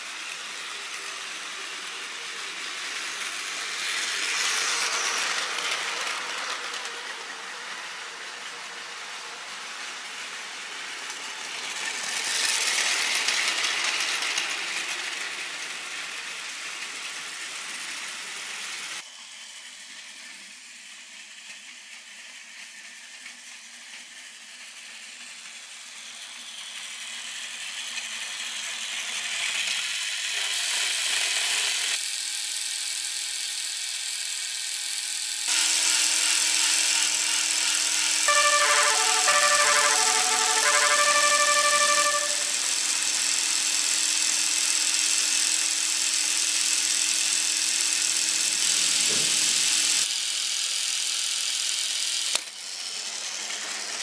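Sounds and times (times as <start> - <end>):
toy train motor whirring: 0.0 - 54.0
wheels rattling over track joints: 0.2 - 19.0, 48.4 - 50.1.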